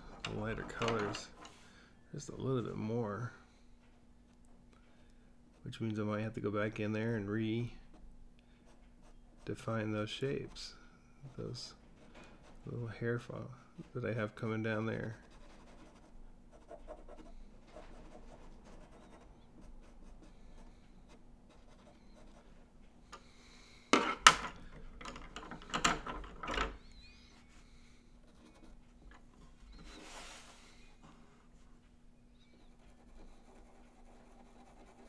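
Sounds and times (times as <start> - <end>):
pencil scratching on paper: 15.2 - 22.5, 32.5 - 35.0
soft rub: 27.1 - 35.0.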